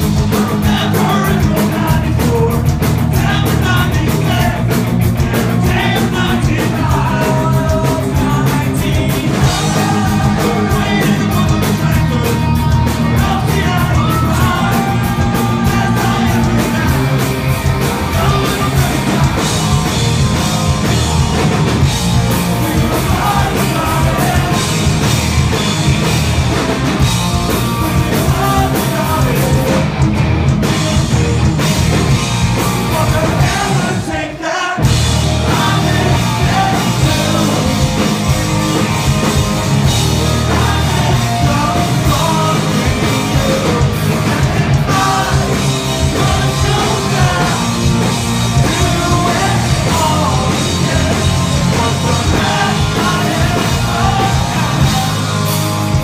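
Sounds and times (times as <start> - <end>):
man singing: 0.0 - 20.1, 22.4 - 25.1, 27.6 - 30.0, 32.6 - 38.4, 40.1 - 55.6
bass: 0.0 - 56.0
distorted electric guitars: 0.0 - 56.0
drums: 0.0 - 56.0.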